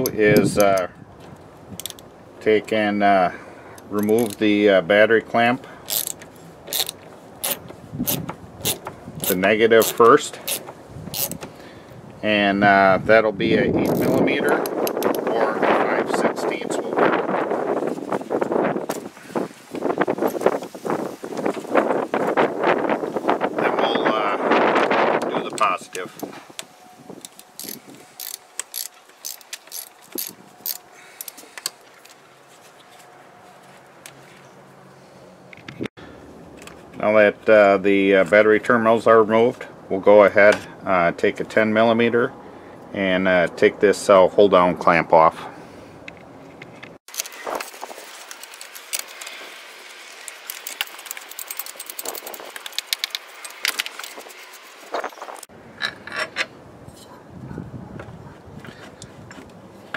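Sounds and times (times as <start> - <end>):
metal clamp rattling: 5.9 - 11.4, 50.3 - 54.3
socket ratchet clicking: 5.9 - 11.4, 27.2 - 31.7.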